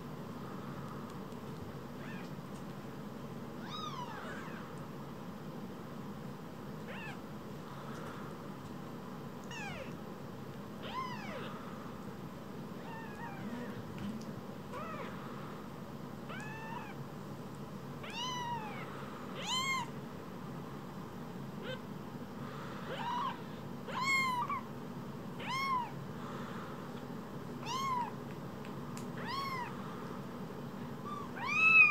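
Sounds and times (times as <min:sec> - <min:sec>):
kittens mewing: 0:03.6 - 0:04.7, 0:06.8 - 0:07.2, 0:09.5 - 0:10.0, 0:18.0 - 0:20.0, 0:21.6 - 0:21.9, 0:22.8 - 0:24.7, 0:25.4 - 0:26.0, 0:27.6 - 0:28.2, 0:29.2 - 0:29.8, 0:31.0 - 0:31.9.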